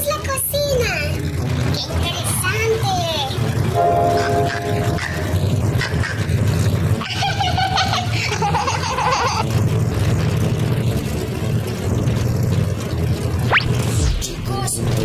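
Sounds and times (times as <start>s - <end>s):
airplane engine drone: 1.2s - 15.0s
high squeaky giggling: 4.2s - 9.4s.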